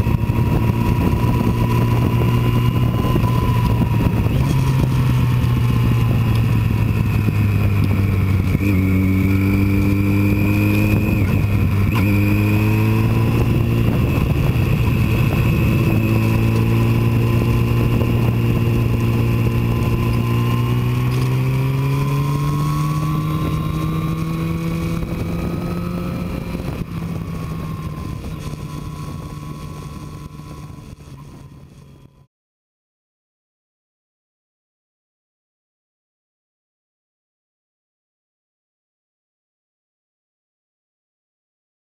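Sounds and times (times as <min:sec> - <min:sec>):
motorcycle engine running: 0:00.0 - 0:32.3
wind and road noise: 0:00.0 - 0:32.3.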